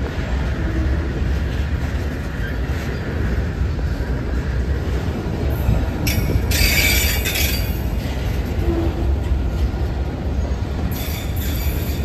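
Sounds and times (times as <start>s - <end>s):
freight train wheels rumbling on rail: 0.0s - 12.0s
high-pitched wheel squeal: 6.5s - 7.8s.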